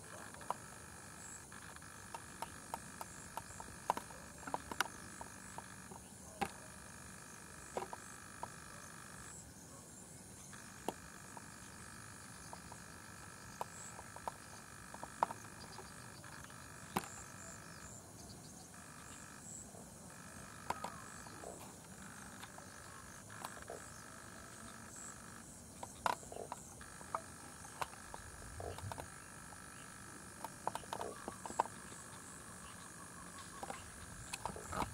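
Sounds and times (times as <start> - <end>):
frog chorus: 0.0 - 34.9
high insect trill: 0.0 - 34.9
sharp clicks and taps: 1.5 - 6.6, 20.6 - 22.7, 25.8 - 29.2, 30.4 - 32.2.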